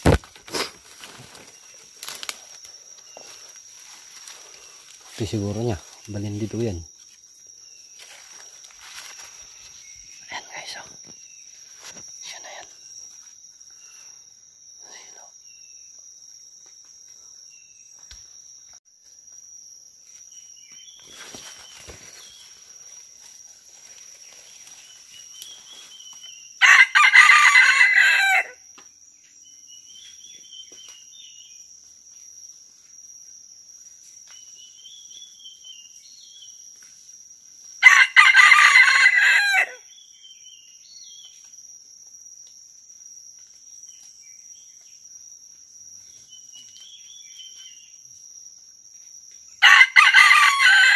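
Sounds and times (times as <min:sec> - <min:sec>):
high-pitched insect drone: 0:00.0 - 0:50.9
faint bird chirps: 0:09.2 - 0:16.1
rooster crowing: 0:26.6 - 0:28.6, 0:37.8 - 0:39.8, 0:49.6 - 0:50.9.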